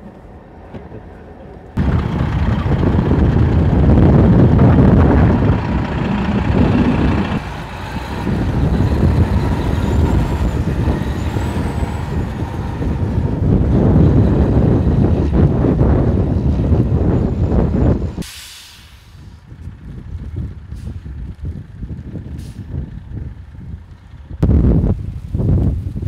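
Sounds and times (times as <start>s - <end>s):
truck diesel engine rumbling: 0.0s - 25.8s.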